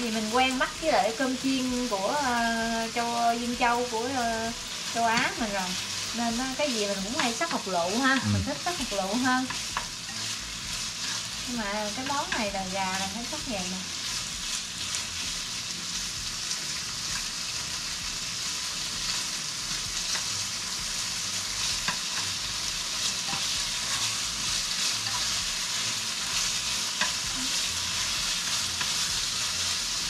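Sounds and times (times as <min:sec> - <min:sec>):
chicken sizzling in a pan: 0:00.0 - 0:30.0
spatula scraping a pan: 0:07.1 - 0:13.0, 0:20.0 - 0:29.7.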